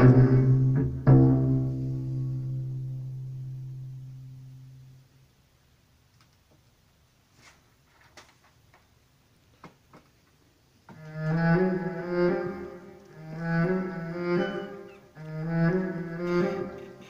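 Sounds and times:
solo cello bowed passage: 0:00.0 - 0:02.7, 0:10.9 - 0:17.0
faint clicks: 0:06.1 - 0:06.6.

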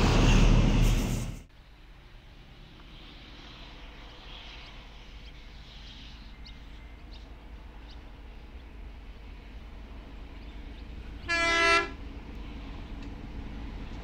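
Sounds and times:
train rumbling: 0:00.0 - 0:14.0
train horn blast: 0:11.2 - 0:12.0.

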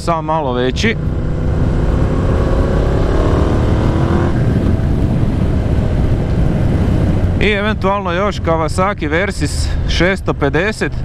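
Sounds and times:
wind rumble on microphone: 0:00.0 - 0:11.0.

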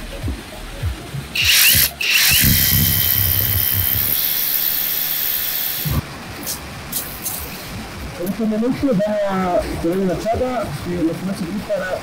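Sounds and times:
hammer drill boring into rock: 0:01.4 - 0:05.9.

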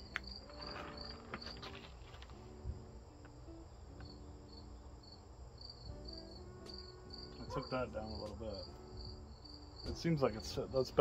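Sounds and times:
cricket chirping: 0:00.0 - 0:11.0.

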